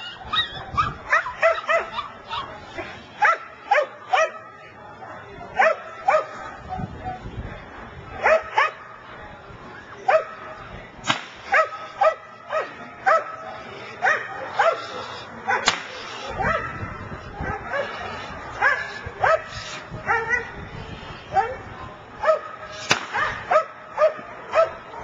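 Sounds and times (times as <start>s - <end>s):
dog barking: 0.8s - 2.4s, 5.6s - 6.4s, 11.5s - 13.3s, 14.0s - 18.0s, 18.6s - 19.5s, 22.2s - 22.5s, 23.2s - 24.8s
sharp cracks: 11.0s - 11.5s, 15.6s - 16.1s, 22.8s - 23.3s.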